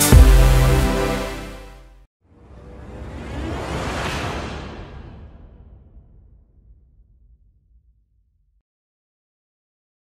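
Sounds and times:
low whoosh rumble: 0:02.3 - 0:08.4.

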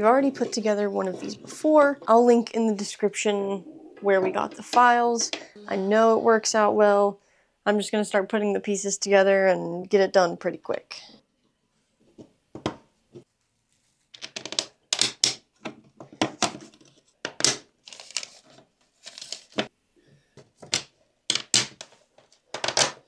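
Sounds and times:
plastic parts clicking and scraping: 0:20.4 - 0:23.0.

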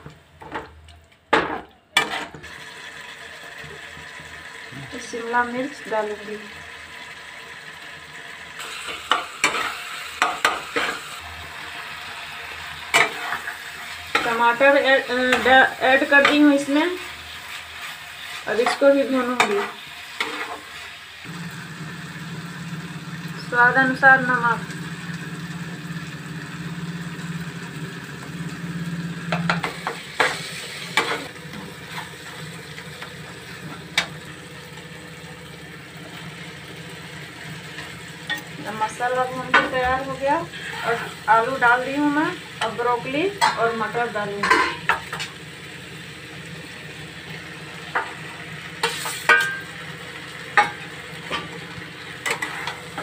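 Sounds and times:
food sizzling: 0:00.0 - 0:53.0
spatula scraping a pan: 0:02.0 - 0:02.5, 0:08.6 - 0:11.2, 0:12.9 - 0:20.9, 0:29.3 - 0:32.4, 0:44.4 - 0:45.4, 0:48.8 - 0:49.6, 0:52.2 - 0:53.0.

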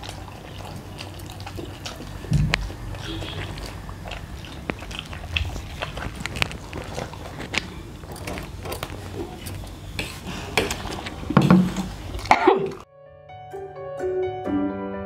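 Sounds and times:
chewing noises: 0:00.0 - 0:12.8
gentle piano tune: 0:12.9 - 0:15.0.

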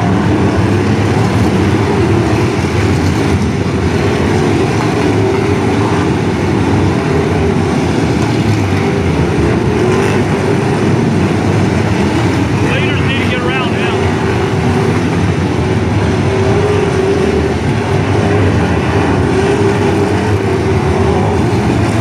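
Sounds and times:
race car engines droning: 0:00.0 - 0:22.0.

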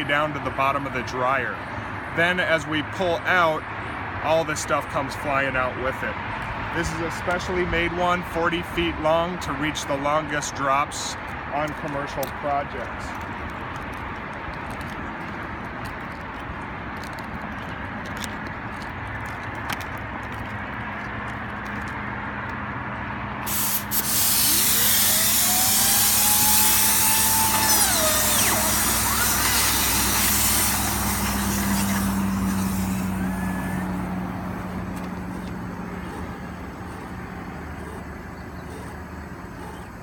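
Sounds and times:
compressed air hissing: 0:23.4 - 0:40.0
rising whine: 0:23.4 - 0:40.0.

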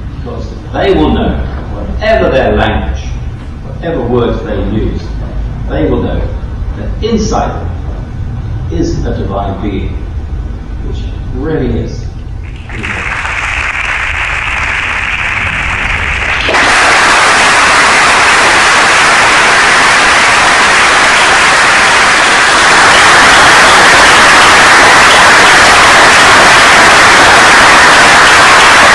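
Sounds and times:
audience applauding: 0:12.4 - 0:28.9.

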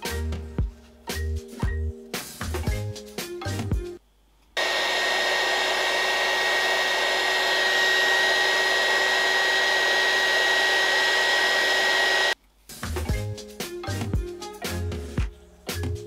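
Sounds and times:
heat gun blowing air: 0:04.6 - 0:12.4.

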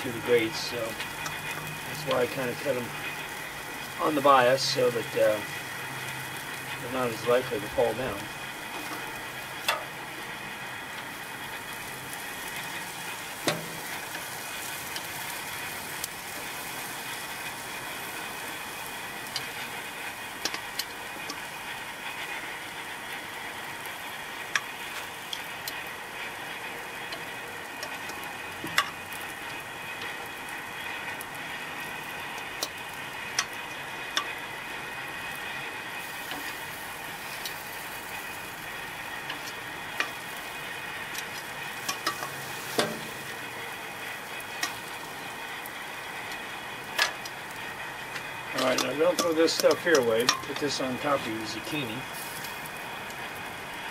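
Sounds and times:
vegetables sizzling on grill: 0:00.0 - 0:53.9.

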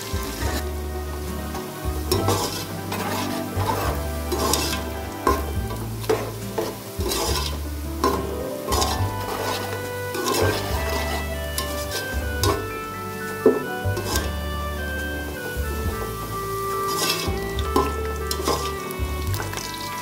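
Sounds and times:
onions sizzling in oil: 0:00.0 - 0:20.0
metal spoon scraping a pot: 0:02.1 - 0:04.9, 0:06.0 - 0:12.6.

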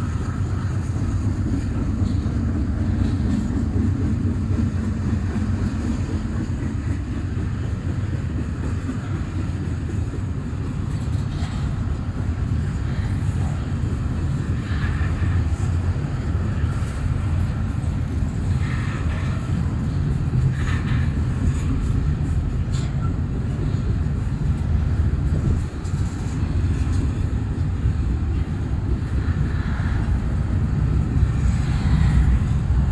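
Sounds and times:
train wheels rumbling on rail: 0:00.0 - 0:32.9.

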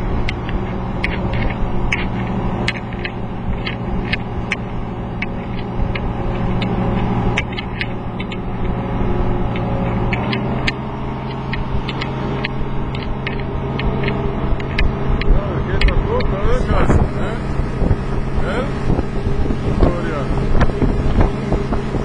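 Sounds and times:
boat diesel engine running: 0:00.0 - 0:22.0
water rushing along hull: 0:00.0 - 0:22.0
sharp clicks: 0:00.2 - 0:08.8, 0:09.4 - 0:16.3.

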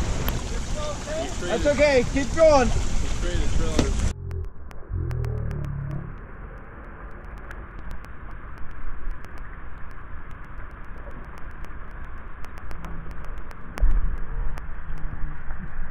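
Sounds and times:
truck rumble: 0:00.0 - 0:06.3.

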